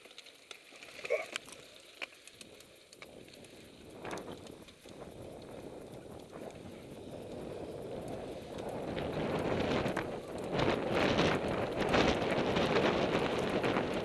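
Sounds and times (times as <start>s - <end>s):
bike tyres rolling on dirt: 0.0s - 14.0s
wind buffeting microphone: 3.0s - 14.0s.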